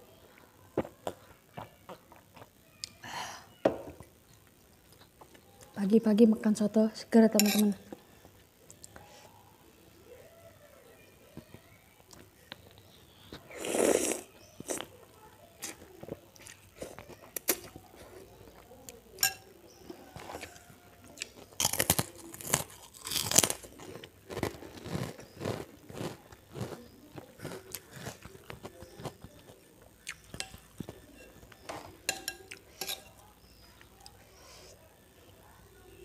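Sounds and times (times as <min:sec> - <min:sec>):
slurping noodles: 0:13.5 - 0:14.9.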